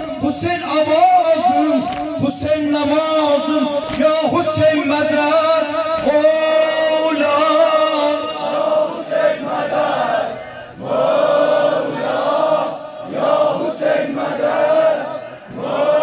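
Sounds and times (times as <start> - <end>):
crowd of men chanting: 0.0 - 16.0.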